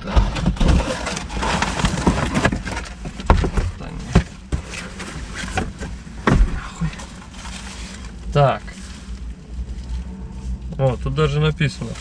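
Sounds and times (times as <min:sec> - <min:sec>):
cardboard scraping and rubbing: 0:00.0 - 0:10.6.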